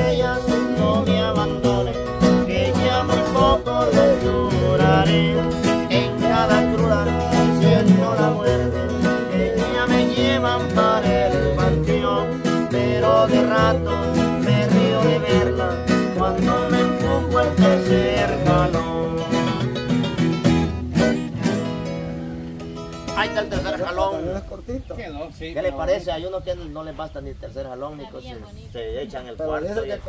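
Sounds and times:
people singing: 0:00.0 - 0:20.0
acoustic guitars strummed: 0:00.0 - 0:24.0
deep acoustic bass guitar: 0:00.0 - 0:24.2.

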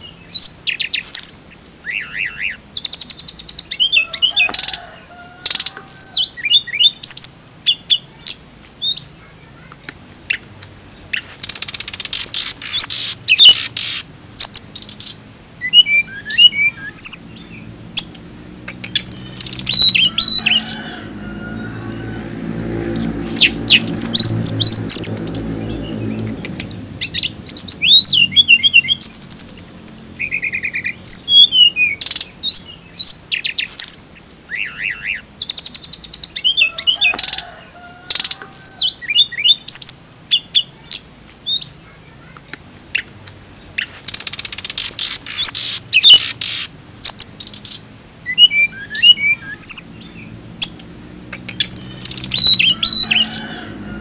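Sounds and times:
flycatcher singing whistles and trills: 0:00.0 - 0:09.3, 0:10.2 - 0:21.2, 0:21.8 - 0:37.5, 0:43.0 - 0:53.8.

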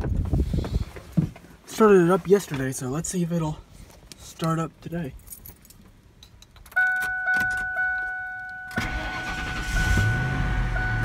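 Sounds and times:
dashboard warning chime: 0:06.7 - 0:11.0
starter motor cranking: 0:08.8 - 0:10.3
truck engine revving and idling: 0:08.8 - 0:11.0.

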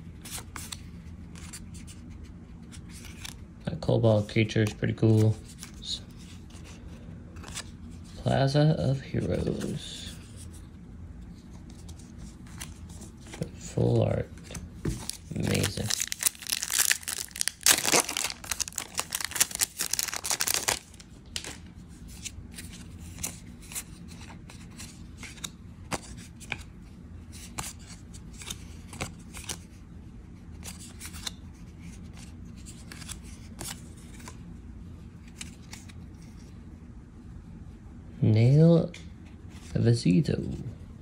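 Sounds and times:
foil wrapper tearing and crinkling: 0:15.4 - 0:21.5.

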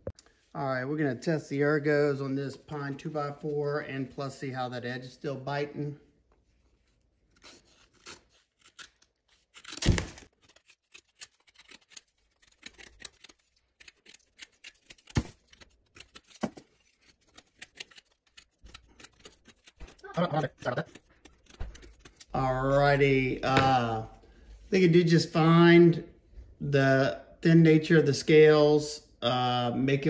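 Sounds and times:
knife scraping wood: 0:07.2 - 0:22.5.

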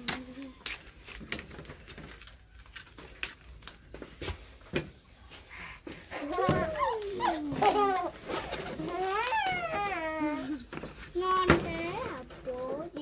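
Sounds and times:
leaves crackling and rustling: 0:06.1 - 0:10.6.

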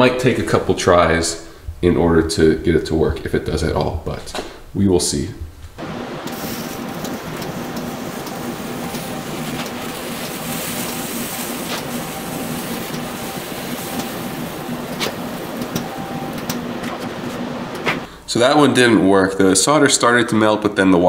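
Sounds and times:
hiss: 0:05.8 - 0:16.6
battery charger hum: 0:05.8 - 0:18.1.

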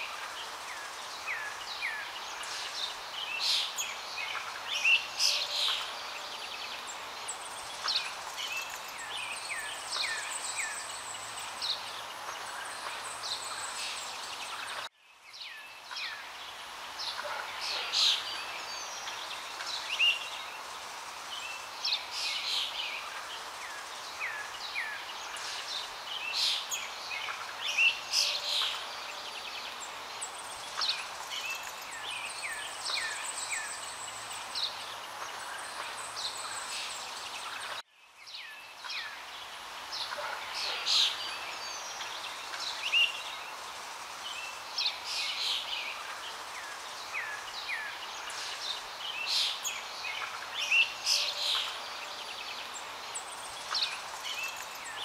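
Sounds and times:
birds chirping and singing: 0:00.0 - 0:55.0
steady background hiss: 0:00.0 - 0:55.0.

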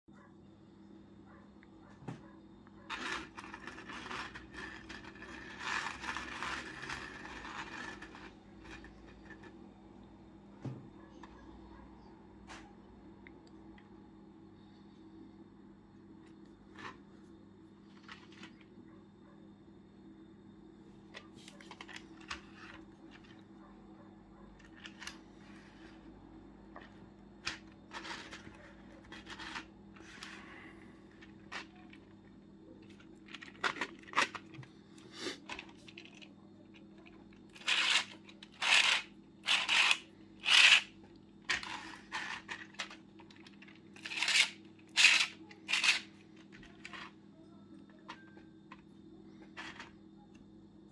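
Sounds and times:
plastic parts clicking and scraping: 0:02.9 - 0:09.7, 0:17.9 - 0:18.6, 0:21.1 - 0:23.4, 0:24.6 - 0:26.0, 0:26.7 - 0:34.7, 0:35.4 - 0:40.9, 0:41.5 - 0:47.2, 0:47.9 - 0:50.0.

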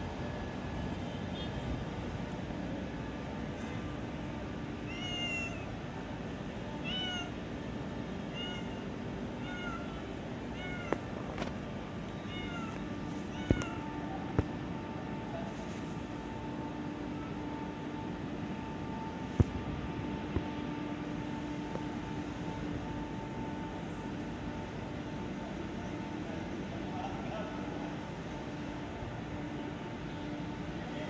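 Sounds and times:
steady background hum: 0:00.0 - 0:31.0
cat meowing: 0:04.9 - 0:05.7, 0:06.8 - 0:07.3, 0:08.3 - 0:08.8, 0:09.4 - 0:11.0, 0:12.2 - 0:13.9.

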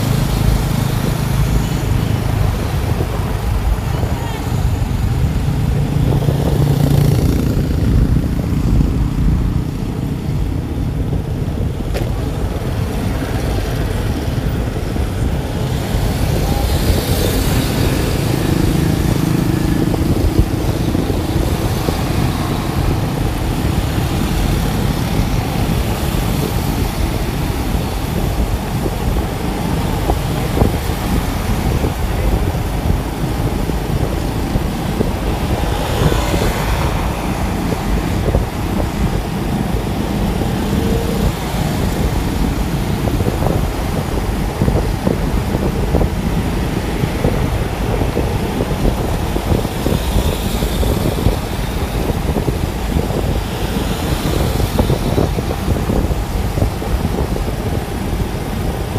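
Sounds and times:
motorbike engines rumbling: 0:00.0 - 0:58.9
wind on microphone: 0:00.0 - 0:58.9.

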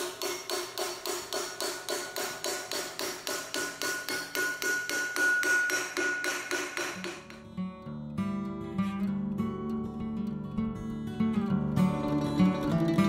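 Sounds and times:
hammer tapping on steel: 0:00.0 - 0:07.5.

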